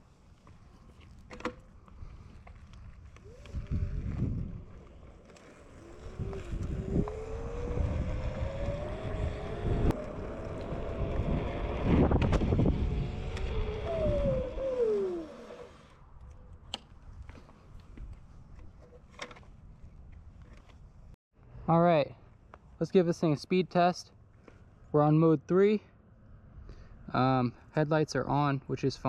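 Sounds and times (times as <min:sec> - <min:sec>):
wind rumbling on microphone: 0:01.8 - 0:18.9
electric scooter motor whining: 0:03.1 - 0:16.1.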